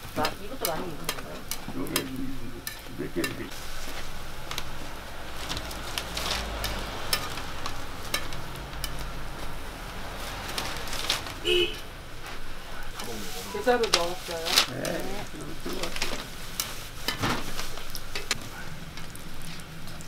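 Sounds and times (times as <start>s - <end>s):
pancakes sizzling in oil: 0.0s - 11.0s, 14.7s - 20.0s
metal tongs clicking on griddle: 0.2s - 3.4s, 6.6s - 9.1s.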